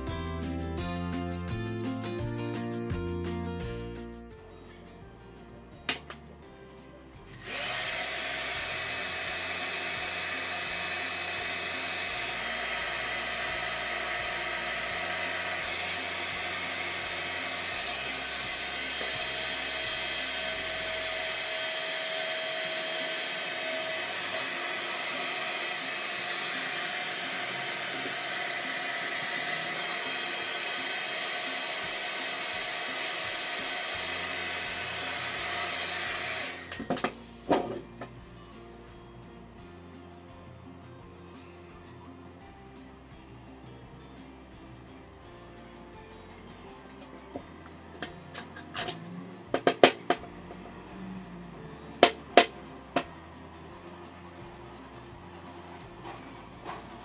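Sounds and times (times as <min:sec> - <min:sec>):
small electric motor running: 0:07.3 - 0:36.9.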